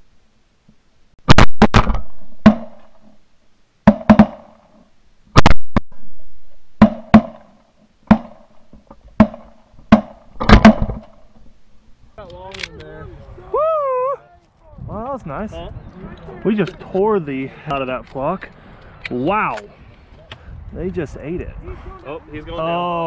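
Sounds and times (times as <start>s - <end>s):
shotgun blasts: 9.2s - 11.2s.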